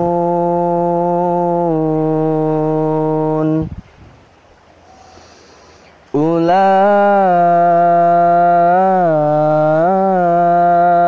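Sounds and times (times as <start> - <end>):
young man reciting melodically: 0.0 - 3.7, 6.0 - 11.0.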